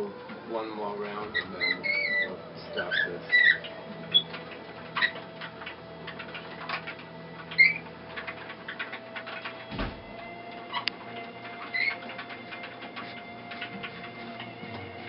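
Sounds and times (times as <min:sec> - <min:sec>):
wooden mill ticking and clicking: 0:00.0 - 0:15.0
short squeaks: 0:01.3 - 0:05.3, 0:07.5 - 0:09.7, 0:10.6 - 0:13.7.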